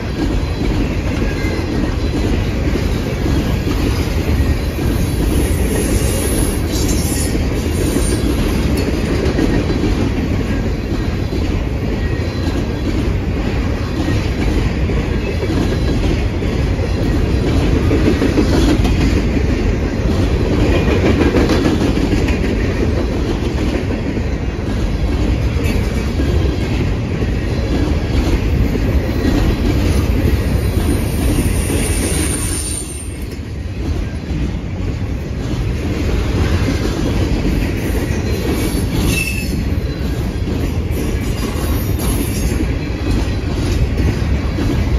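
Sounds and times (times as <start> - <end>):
freight train wheels rumbling: 0.0 - 44.9
high wheel squeal: 30.8 - 33.3.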